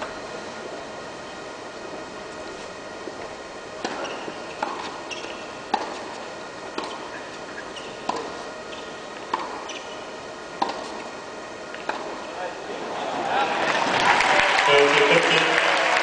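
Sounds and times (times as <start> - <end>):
tennis ball hits and bounces: 3.8 - 7.2, 7.8 - 10.0, 10.6 - 11.1, 11.8 - 12.3.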